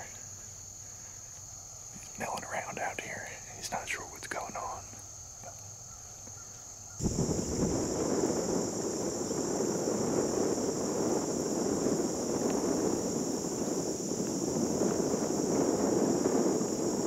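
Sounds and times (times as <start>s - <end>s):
high-pitched insect chorus: 0.0s - 17.0s
low rushing noise: 7.0s - 17.0s.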